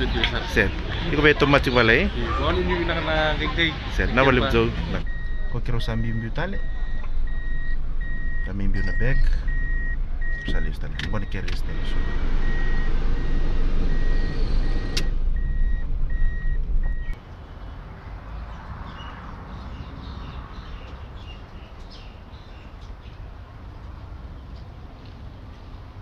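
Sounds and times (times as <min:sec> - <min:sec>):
heavy vehicle engine rumble: 0:00.0 - 0:18.5
reversing alarm beeping: 0:05.0 - 0:17.2.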